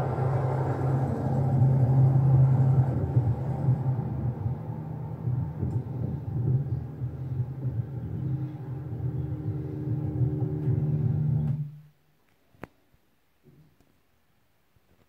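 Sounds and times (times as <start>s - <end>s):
low rumble with hum: 0.0s - 12.0s.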